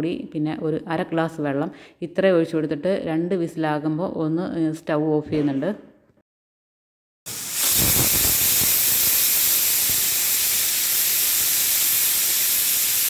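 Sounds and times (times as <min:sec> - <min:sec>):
pressure cooker whistling: 0:07.3 - 0:13.0.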